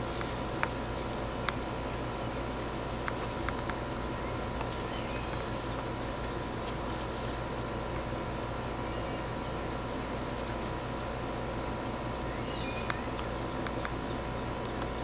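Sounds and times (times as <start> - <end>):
faint clicks and rustles: 0.0 - 7.8
steady hiss and low hum: 0.0 - 15.0.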